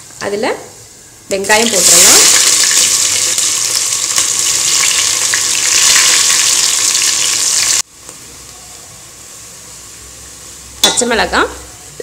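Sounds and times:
onions sizzling in hot oil: 1.3s - 11.5s.

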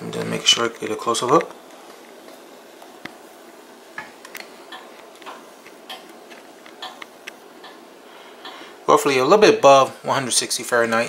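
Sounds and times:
rotisserie oven ticking: 6.8s - 7.8s.

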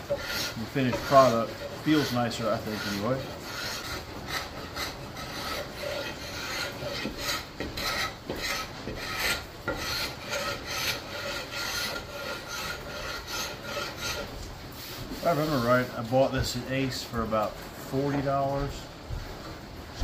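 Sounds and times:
steel scraper on wood: 0.0s - 15.8s.

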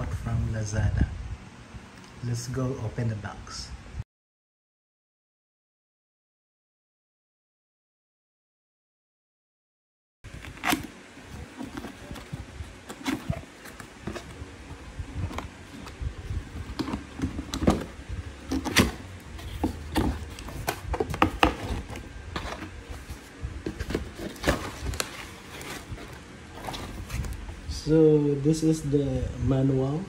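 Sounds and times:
cardboard box scraping and rustling: 10.3s - 27.4s.

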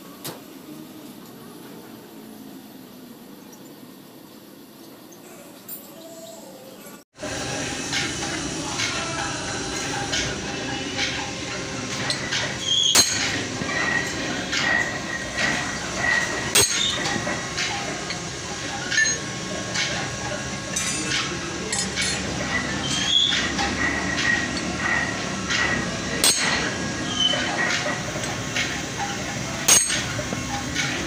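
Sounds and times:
hammer striking steel: 7.8s - 20.1s, 20.7s - 31.0s
steel parts clinking: 11.9s - 20.0s, 20.7s - 31.0s.

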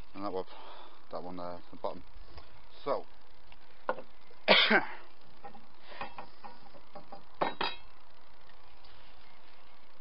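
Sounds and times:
steel plate clinking: 5.4s - 8.0s.

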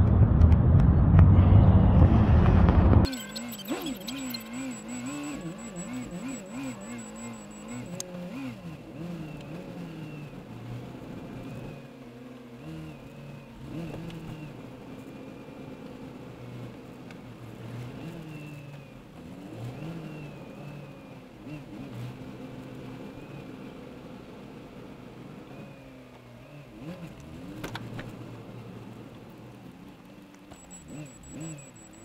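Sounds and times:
car engine revving: 0.0s - 32.0s.

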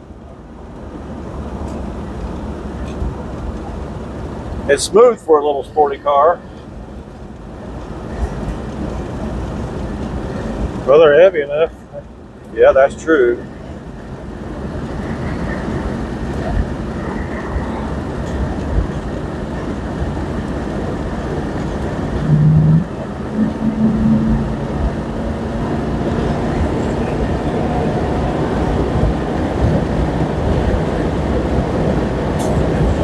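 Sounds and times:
car engine cruising: 0.0s - 33.0s
road noise inside car: 0.0s - 33.0s
wind noise: 13.7s - 33.0s.

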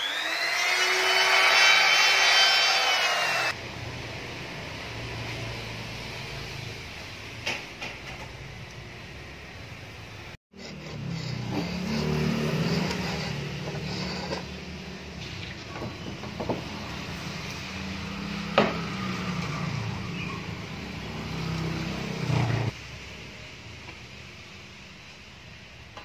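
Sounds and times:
power saw running: 0.0s - 3.6s.

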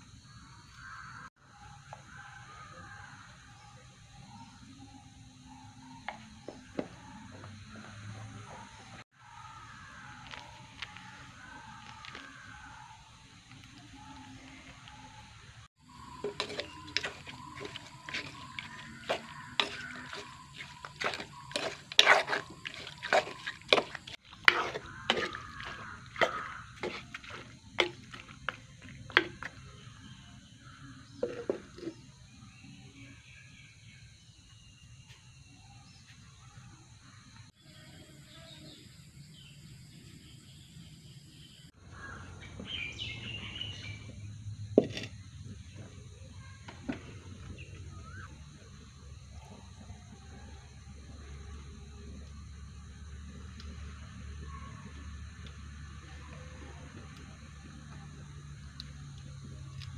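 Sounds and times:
birds chirping: 3.6s - 34.7s, 38.4s - 52.2s
wooden spoon knocking clay pot: 15.9s - 29.7s, 31.2s - 32.0s
meat squelching and sloshing: 16.0s - 29.5s.

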